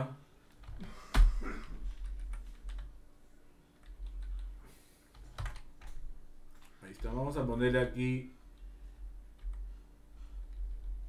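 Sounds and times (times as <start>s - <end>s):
computer keyboard typing: 2.0s - 2.9s, 3.8s - 7.1s, 9.3s - 9.7s.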